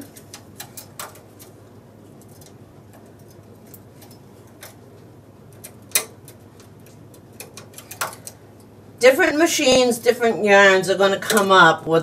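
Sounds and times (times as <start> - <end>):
small metal clicks: 5.5 - 8.7.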